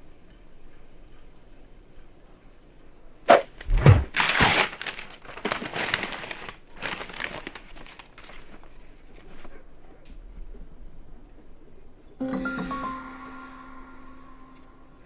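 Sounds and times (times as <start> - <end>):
paper ripping: 3.3 - 9.4
paper tearing and rustling: 3.3 - 9.5.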